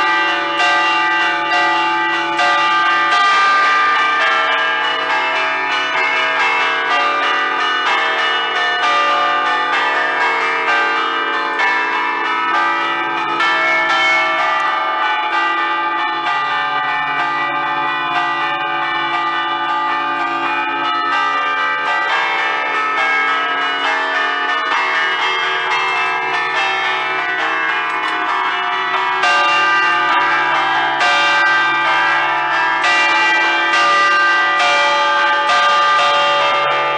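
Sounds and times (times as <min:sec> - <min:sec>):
church bells chiming by hand: 0:00.0 - 0:36.9.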